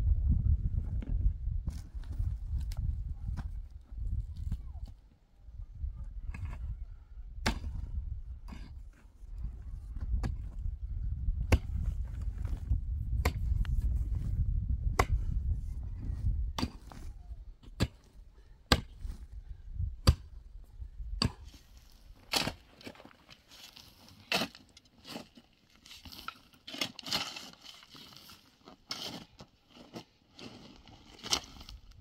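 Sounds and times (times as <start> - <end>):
low rumble: 0.0 - 3.3
sharp blows of a hand tool: 15.0 - 15.2, 18.7 - 19.0.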